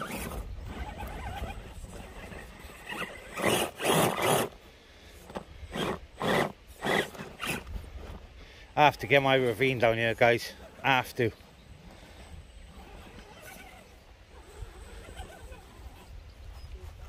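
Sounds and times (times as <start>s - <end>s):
rc car grinding over rock: 0.0s - 17.0s
wind rumble on microphone: 14.4s - 17.0s.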